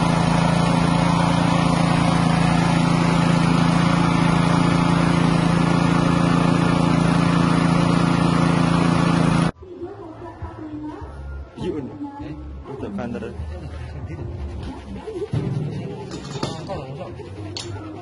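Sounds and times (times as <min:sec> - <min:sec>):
small engine running steadily: 0:00.0 - 0:09.6, 0:14.6 - 0:18.0.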